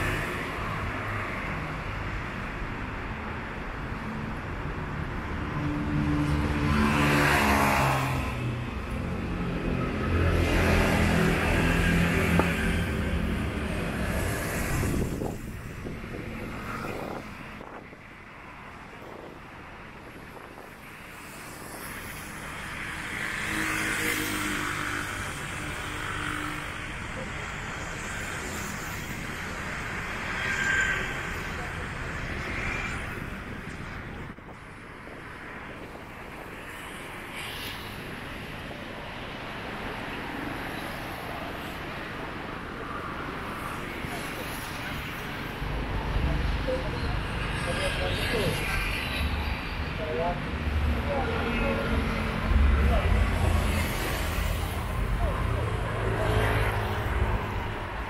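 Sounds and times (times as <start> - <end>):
road traffic cars passing: 0.0 - 58.0
street background noise: 0.0 - 58.0
vehicle passing on road: 5.2 - 17.9.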